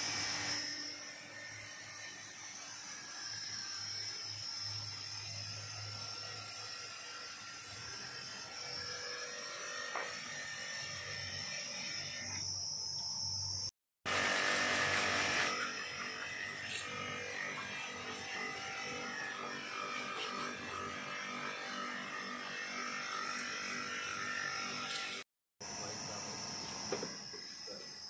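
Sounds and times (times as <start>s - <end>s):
pressure washer humming and whining: 0.0s - 3.2s, 14.1s - 27.8s.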